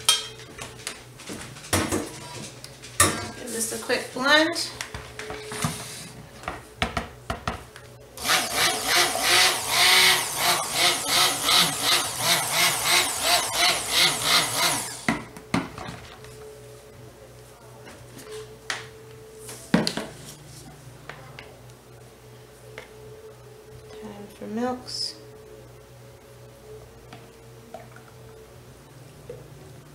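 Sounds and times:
immersion blender motor: 8.2 - 15.1.

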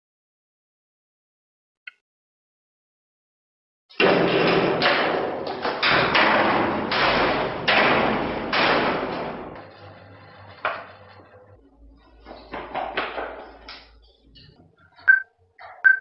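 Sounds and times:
heavy thumps and bangs: 3.9 - 11.0.

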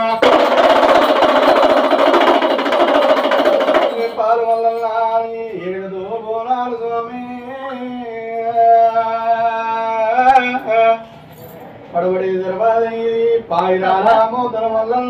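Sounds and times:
fast drumming: 0.0 - 4.4
man singing a devotional chant: 4.1 - 11.1, 11.9 - 15.0.

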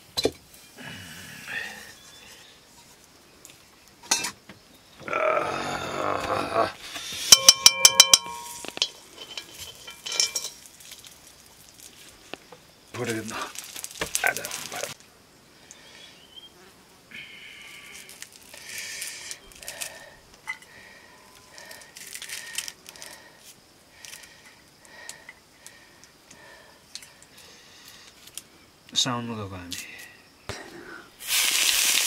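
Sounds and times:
insects buzzing: 0.5 - 32.0.

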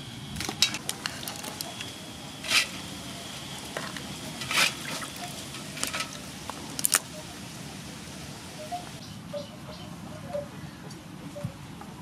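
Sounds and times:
wet scraping: 2.4 - 2.8, 3.6 - 7.1.

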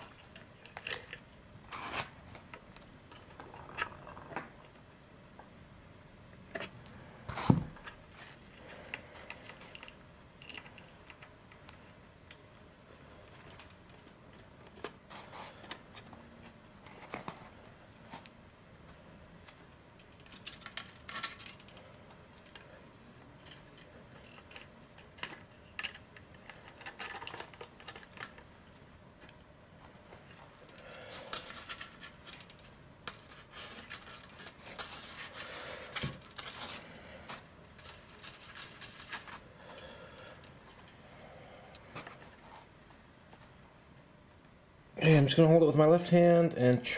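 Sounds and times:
handling clicks and scratches: 23.4 - 28.5.

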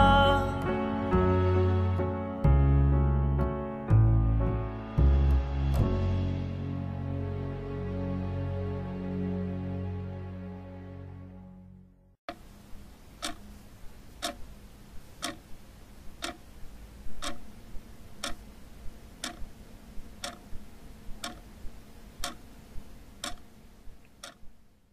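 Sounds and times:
faint hum: 12.3 - 24.9
clock ticking: 13.1 - 15.6, 16.2 - 16.5, 17.1 - 17.6, 18.2 - 18.5, 19.2 - 19.6, 20.2 - 20.6, 21.2 - 21.6, 22.2 - 22.5, 23.2 - 23.5, 24.2 - 24.5.

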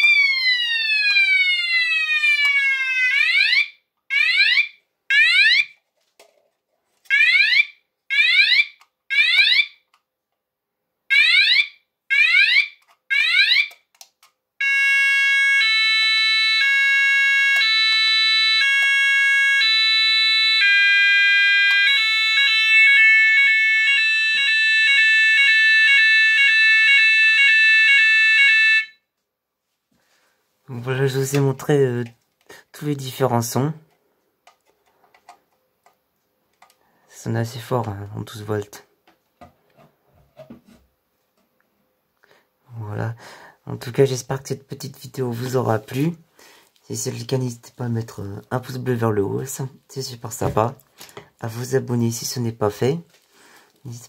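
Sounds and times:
fire alarm sounder tones: 0.0 - 5.7, 7.1 - 9.8, 11.1 - 13.8, 14.6 - 29.1.

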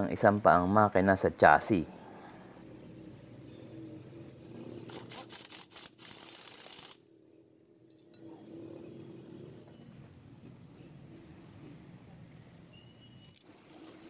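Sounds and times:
low steady hum: 0.0 - 5.1.

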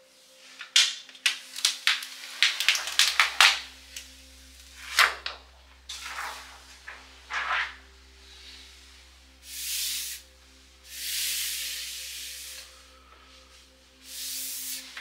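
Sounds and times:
plastic sheet rustling: 0.4 - 4.1, 4.8 - 8.6
plastic film peeling and crackling: 0.6 - 4.2.

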